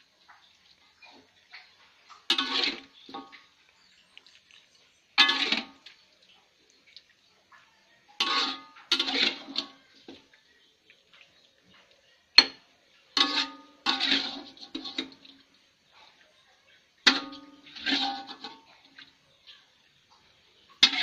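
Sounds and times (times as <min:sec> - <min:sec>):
metal spatula clanking on wok: 0:08.2 - 0:09.8, 0:12.4 - 0:15.2, 0:17.1 - 0:18.7.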